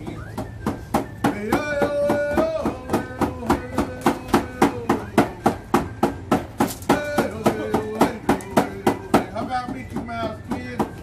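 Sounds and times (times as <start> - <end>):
hand drum steady beat: 0.0 - 11.0
man singing chant: 1.3 - 5.6, 6.8 - 11.0.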